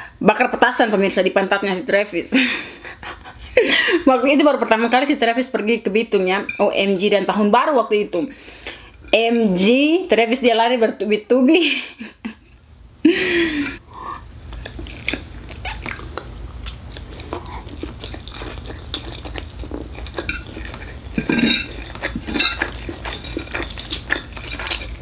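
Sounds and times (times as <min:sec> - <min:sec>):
chewing and slurping noodles: 0:14.5 - 0:25.0.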